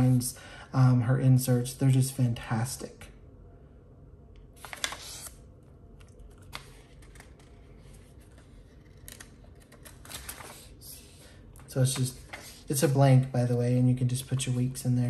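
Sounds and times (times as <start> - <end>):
paper pages rustling: 4.6 - 5.4, 6.1 - 10.8.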